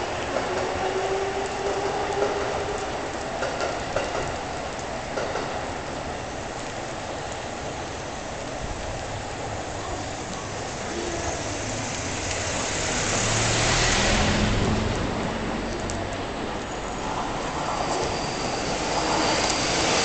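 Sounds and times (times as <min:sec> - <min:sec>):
vehicle passing: 0:11.7 - 0:16.4.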